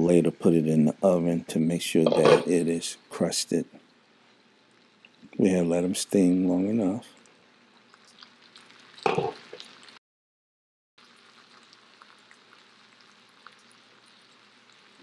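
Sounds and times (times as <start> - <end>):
small crackles: 7.0 - 10.0, 11.0 - 15.0
food sizzling in a skillet: 7.4 - 10.0, 11.0 - 15.0.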